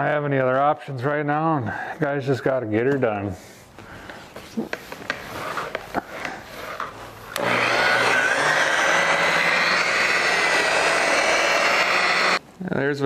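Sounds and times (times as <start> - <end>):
electric polisher running: 7.4 - 12.4.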